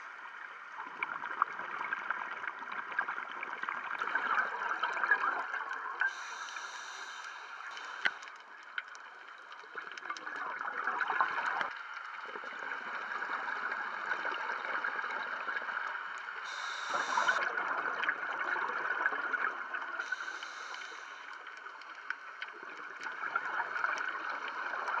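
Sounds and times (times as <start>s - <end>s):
underwater bubbles gurgling: 0.0s - 25.0s
regulator hissing: 16.5s - 17.4s, 20.0s - 21.3s.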